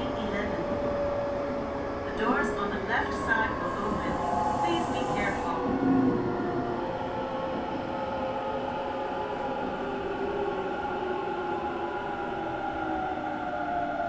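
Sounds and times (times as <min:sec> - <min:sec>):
train running noise: 0:00.0 - 0:10.6.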